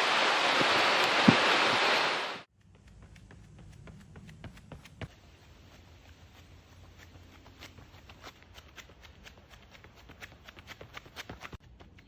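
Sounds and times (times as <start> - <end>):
running footsteps on asphalt: 2.5 - 12.0.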